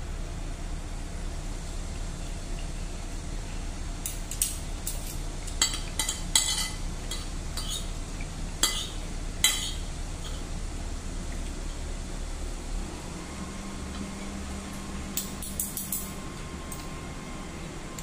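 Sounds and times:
steady low hum: 0.0 - 18.0
cutlery clinking on plate: 5.6 - 7.9.

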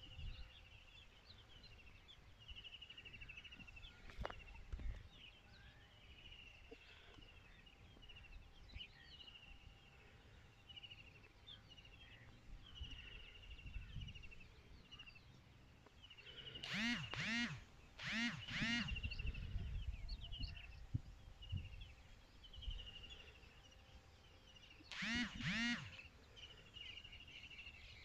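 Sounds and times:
small birds chirping and trilling: 0.0 - 28.0
duck quacking: 16.6 - 19.0, 24.9 - 26.0.

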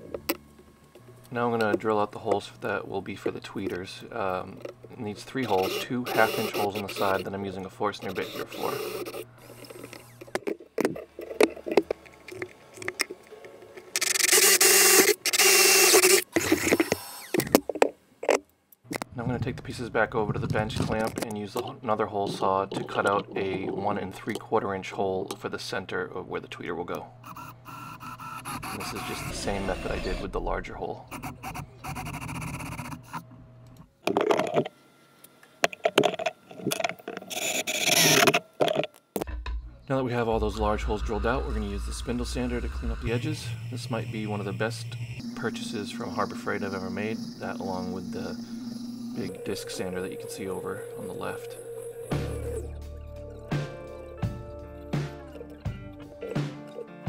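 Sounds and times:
drill boring into plywood: 5.4 - 7.3, 8.0 - 10.2, 14.0 - 17.6, 27.3 - 30.1
drill motor whine: 5.4 - 7.4, 8.0 - 10.3, 14.0 - 17.6, 27.2 - 30.6, 40.3 - 52.8.

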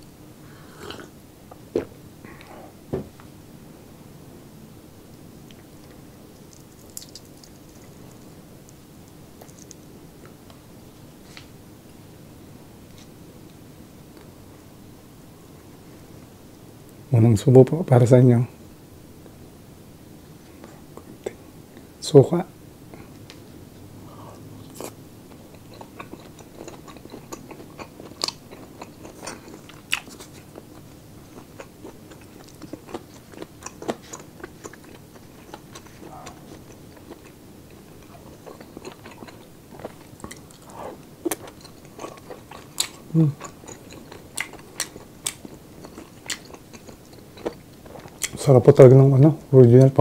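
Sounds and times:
chewing and crunching: 5.5 - 10.4, 24.6 - 48.5.

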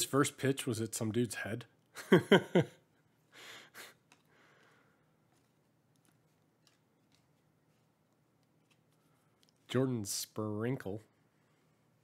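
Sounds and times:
trading cards clicking: 3.8 - 4.8, 5.4 - 9.7.

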